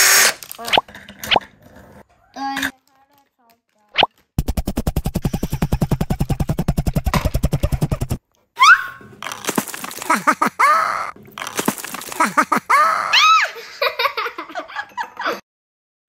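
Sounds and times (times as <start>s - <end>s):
child laughing and squealing: 7.7s - 9.0s, 10.0s - 11.2s, 12.1s - 13.7s.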